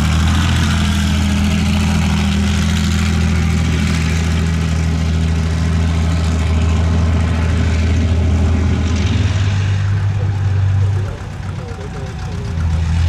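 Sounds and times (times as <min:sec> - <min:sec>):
diesel engine running loud: 0:00.0 - 0:13.0
vehicle tracks clanking: 0:09.0 - 0:13.0.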